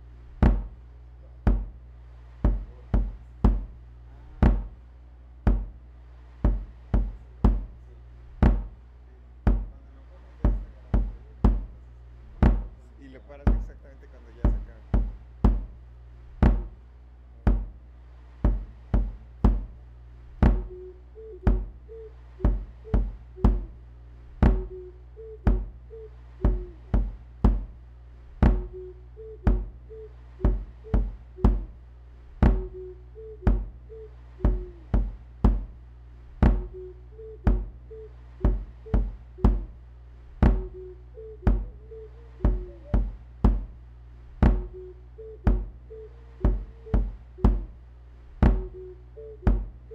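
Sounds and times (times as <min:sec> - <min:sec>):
drum machine beat: 0:00.0 - 0:01.8, 0:02.4 - 0:04.8, 0:05.4 - 0:05.8, 0:06.4 - 0:08.8, 0:09.4 - 0:16.8, 0:17.5 - 0:17.7, 0:18.4 - 0:27.8, 0:28.4 - 0:31.8, 0:32.4 - 0:35.8, 0:36.4 - 0:39.8, 0:40.4 - 0:43.8, 0:44.4 - 0:47.8, 0:48.4 - 0:49.9
low bass: 0:00.0 - 0:49.9
small wind instrument melody: 0:20.5 - 0:23.8, 0:24.5 - 0:26.9, 0:28.5 - 0:31.6, 0:32.5 - 0:34.9, 0:40.5 - 0:43.1.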